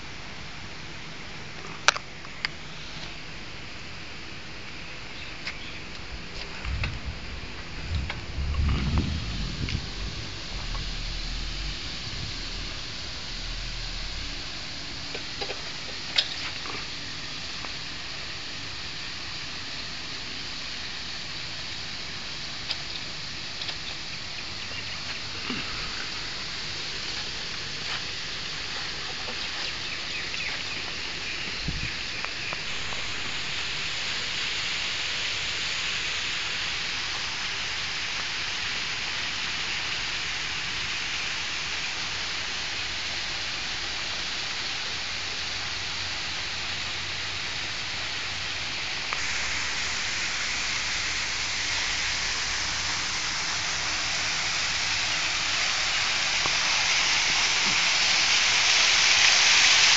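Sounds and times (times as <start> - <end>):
waterfall splashing into pool: 32.6 - 59.9.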